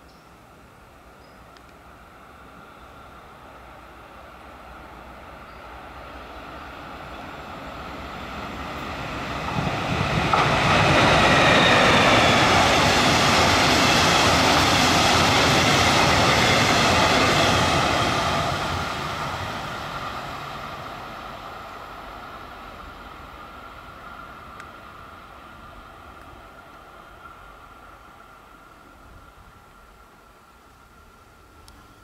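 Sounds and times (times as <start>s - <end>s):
faint high whine: 0.0s - 8.3s
train wheels rolling on rails: 1.6s - 32.0s.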